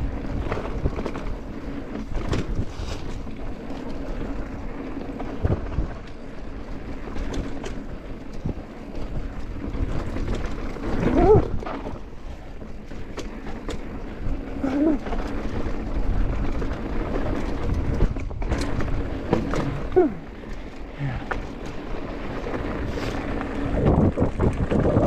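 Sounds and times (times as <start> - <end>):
bike knocking and rattling: 0.0 - 25.0
tyre rumble on dirt: 0.0 - 25.0
wind on microphone: 10.9 - 12.0, 22.8 - 25.0.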